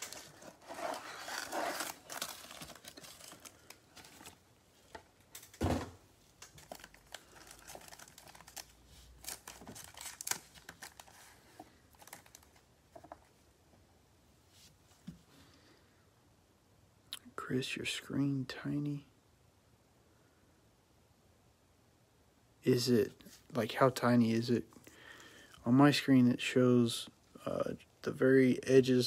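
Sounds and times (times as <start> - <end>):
foil packs and cardboard crinkling: 0.0 - 5.5, 6.4 - 13.1
thump: 5.6 - 6.0.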